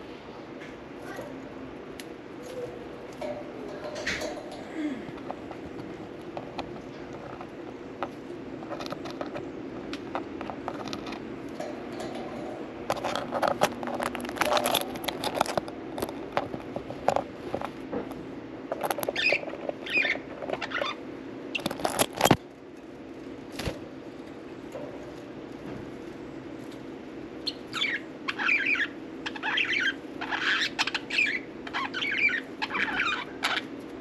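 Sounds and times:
steady low hum: 0.0s - 34.0s
budgerigars clicking and scratching: 2.0s - 17.8s, 18.7s - 22.4s, 27.4s - 34.0s.

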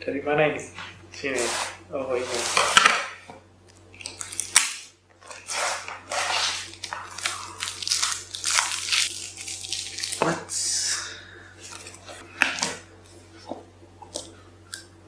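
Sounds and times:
packing tape peeled off box: 4.1s - 10.3s.

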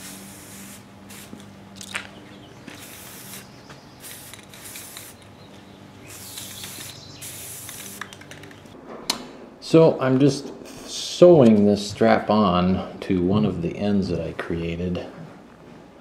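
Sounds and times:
aerosol spray can hissing: 0.0s - 1.4s, 2.7s - 5.3s, 6.0s - 8.2s.

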